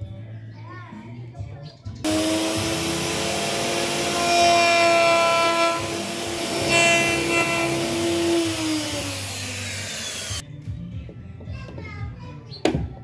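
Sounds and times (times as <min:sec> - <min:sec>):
router bit rasping through wood: 0:02.1 - 0:10.4
wood router whining: 0:02.1 - 0:10.4.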